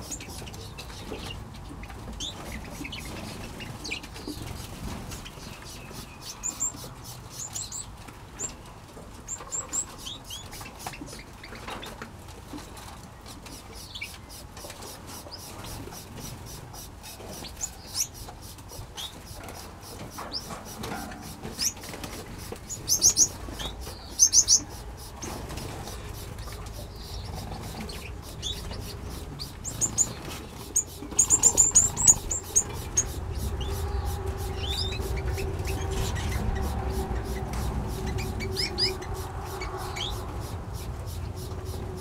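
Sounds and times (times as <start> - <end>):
small birds chirping: 0.0 - 42.0
low rumble: 32.2 - 42.0.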